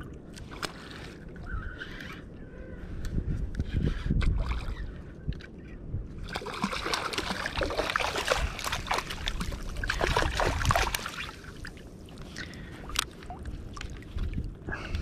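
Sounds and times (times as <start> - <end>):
fish splashing at the surface: 6.2 - 11.6.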